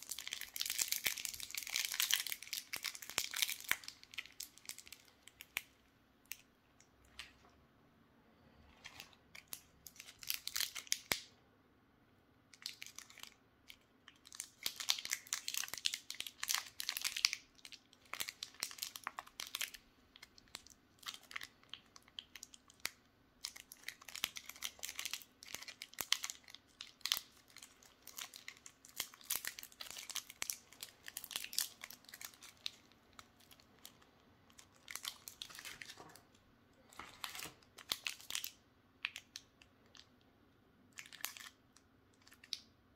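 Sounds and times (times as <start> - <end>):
wrappers crinkling and tearing: 14.1 - 36.2, 36.8 - 39.4, 41.0 - 41.6.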